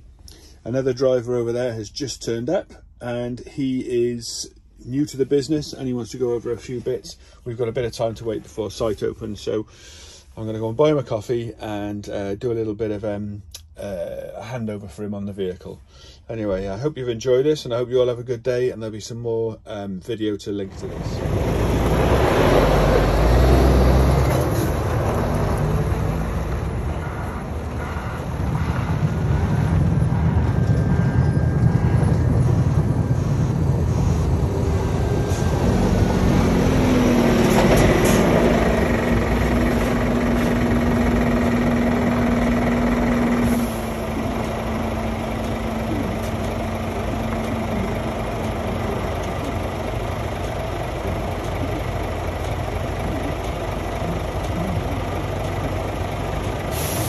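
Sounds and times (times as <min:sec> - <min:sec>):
diesel truck engines running: 0:20.1 - 0:57.0
steady hum: 0:38.6 - 0:57.0.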